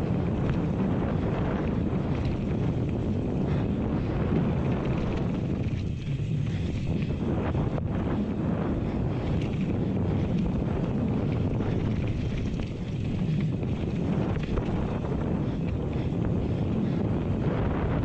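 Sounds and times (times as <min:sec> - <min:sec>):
bike tyres on dirt: 0:00.0 - 0:18.0
wind buffeting microphone: 0:00.0 - 0:18.0
bike clicks and knocks: 0:01.6 - 0:03.4, 0:04.2 - 0:07.2, 0:09.2 - 0:16.1.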